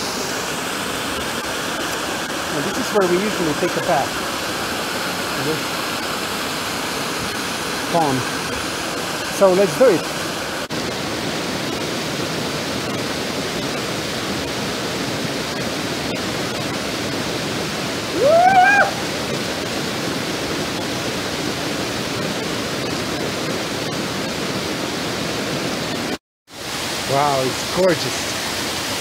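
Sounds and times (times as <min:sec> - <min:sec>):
waterfall pouring into pool: 0:00.0 - 0:29.0
man yelling: 0:18.2 - 0:19.0.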